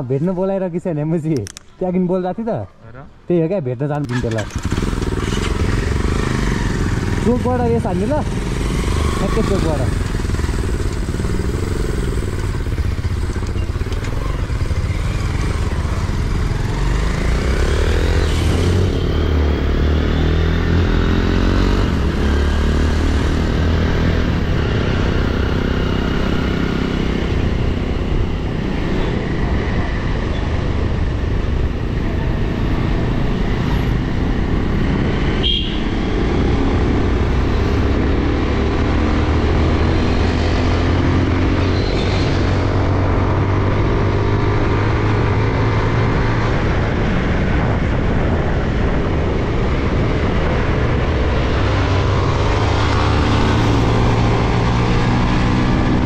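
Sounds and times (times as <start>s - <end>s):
motorcycle engine revving: 4.0s - 56.0s
wind rush on microphone: 41.8s - 56.0s.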